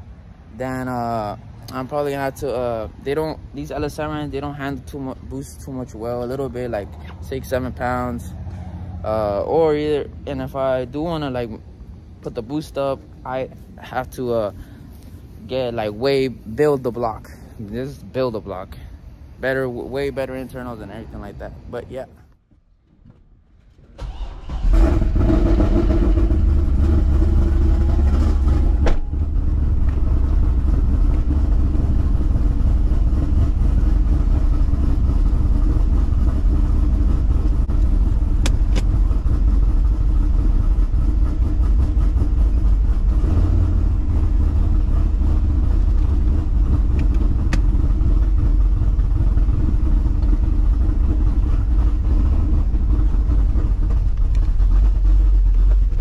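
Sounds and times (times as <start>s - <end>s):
car engine starting and idling: 23.6s - 56.0s.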